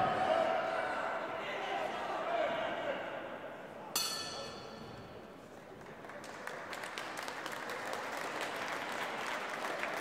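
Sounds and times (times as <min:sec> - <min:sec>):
crowd applauding: 0:05.7 - 0:10.0.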